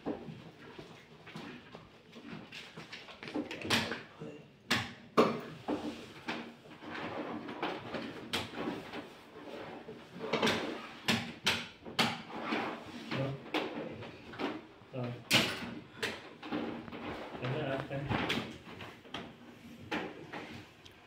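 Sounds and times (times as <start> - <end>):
knocks and clatter of tv handling: 4.7 - 9.3, 10.0 - 20.7.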